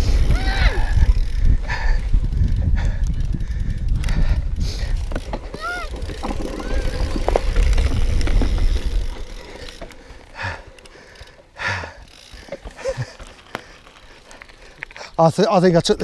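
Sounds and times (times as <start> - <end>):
wind rumbling on microphone: 0.0 - 10.6
bike rolling on rough track: 0.0 - 16.0.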